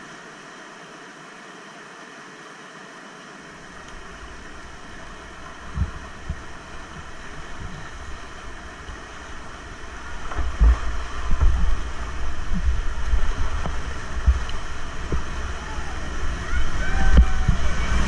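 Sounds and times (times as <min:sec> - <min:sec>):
whitewater rapids rushing: 0:03.4 - 0:18.0
wind buffeting microphone: 0:03.9 - 0:18.0.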